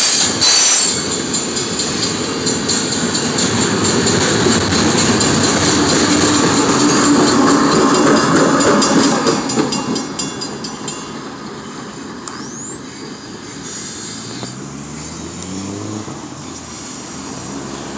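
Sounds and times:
train wheel clatter and rumble: 0.0s - 14.4s
low engine note rising: 13.8s - 17.9s.

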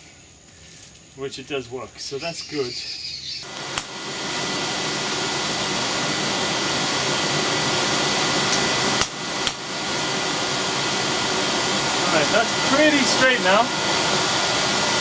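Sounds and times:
electric air blower rushing: 3.4s - 15.0s.

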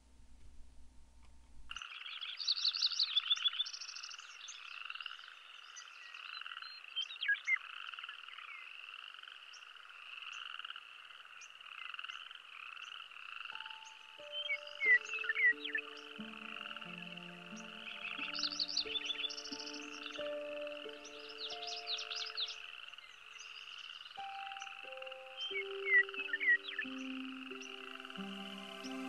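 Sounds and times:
steady music tones: 13.6s - 22.9s, 24.2s - 29.0s.

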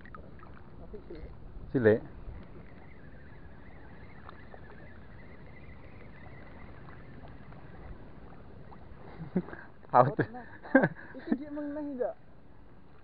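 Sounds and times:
sea water washing: 0.0s - 13.0s
wind: 0.0s - 13.0s.

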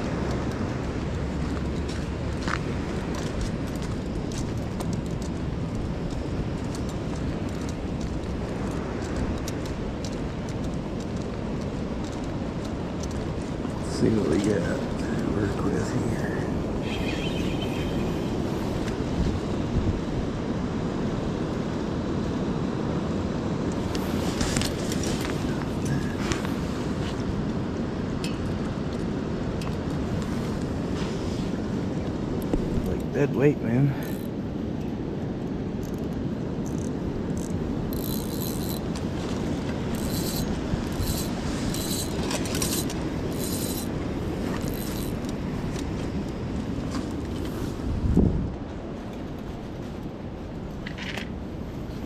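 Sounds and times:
wind on microphone: 0.0s - 22.2s, 36.3s - 52.0s
rustling and scraping: 23.9s - 27.3s, 30.0s - 31.6s, 38.0s - 47.9s
flowing river: 36.5s - 52.0s.

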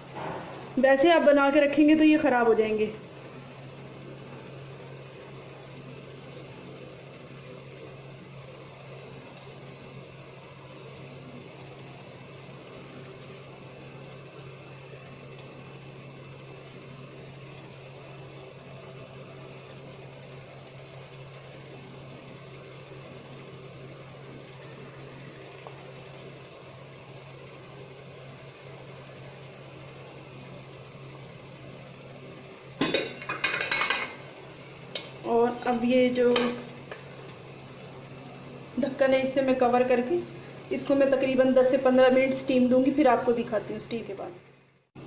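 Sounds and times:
low mechanical hum: 0.0s - 45.0s
cookware clattering: 32.8s - 34.2s.

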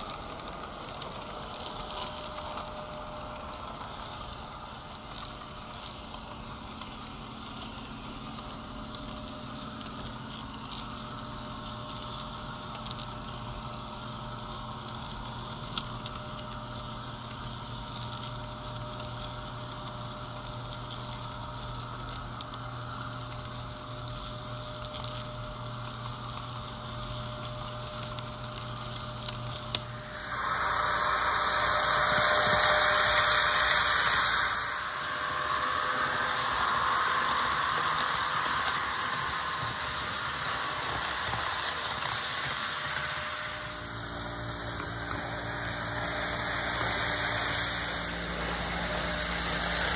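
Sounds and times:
model train humming: 0.0s - 49.9s
rushing hiss of passing train: 29.8s - 49.9s.

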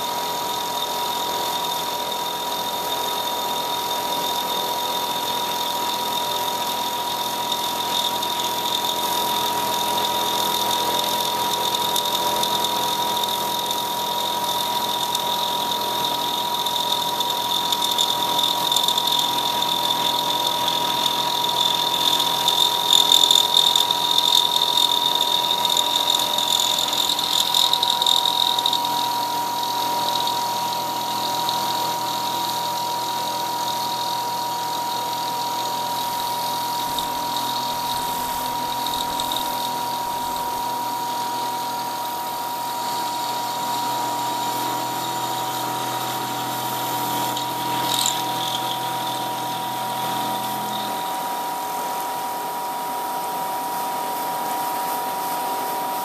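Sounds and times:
coolant mist hissing: 0.0s - 51.6s
end mill cutting metal: 0.0s - 51.6s
milling spindle whining: 0.0s - 51.7s.

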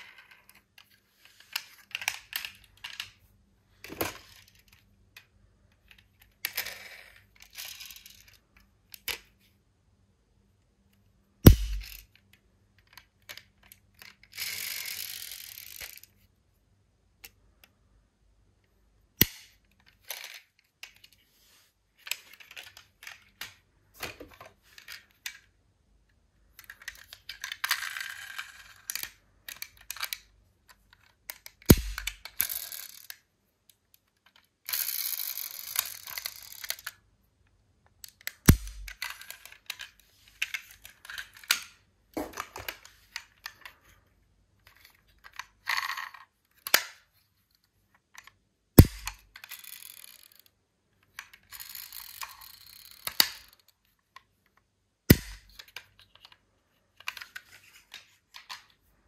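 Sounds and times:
metal toy cars clinking: 6.4s - 8.4s, 12.9s - 16.2s, 31.0s - 33.2s, 34.3s - 37.0s, 49.4s - 50.5s, 51.1s - 53.8s
sharp knocks: 11.5s - 12.0s.

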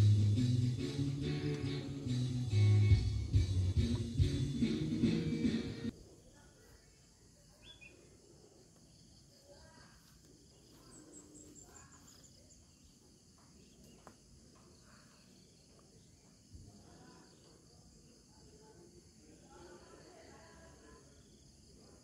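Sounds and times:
faint insects chirping: 5.9s - 22.0s.

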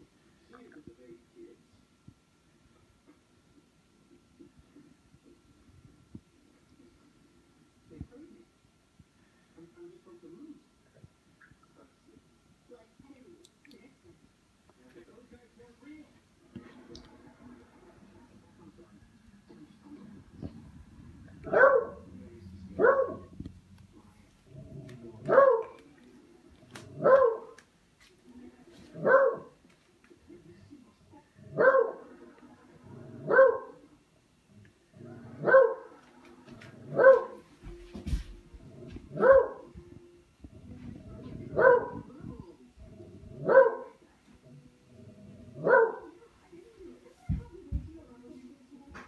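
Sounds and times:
dog barking: 21.4s - 22.1s, 22.8s - 23.3s, 25.3s - 25.8s, 27.0s - 27.6s, 29.0s - 29.6s, 31.5s - 32.1s, 33.2s - 33.8s, 35.4s - 36.0s, 36.9s - 37.4s, 39.1s - 39.7s, 41.6s - 42.1s, 43.4s - 44.0s, 45.6s - 46.1s.

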